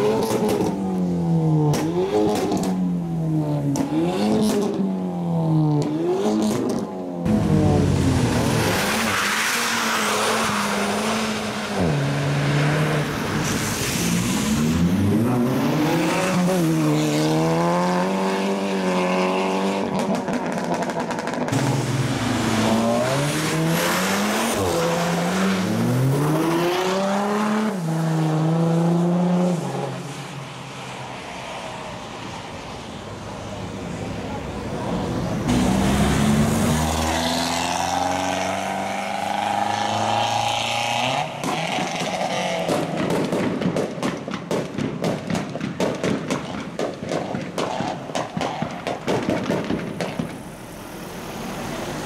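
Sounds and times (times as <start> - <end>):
tyres squealing on wet road: 8.2 - 16.8, 21.6 - 27.0
car engine revving hard: 35.5 - 42.9.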